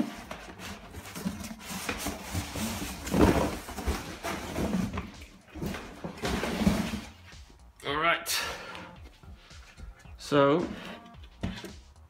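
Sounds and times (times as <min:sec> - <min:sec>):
cardboard and fabric rustling: 0:00.0 - 0:07.5.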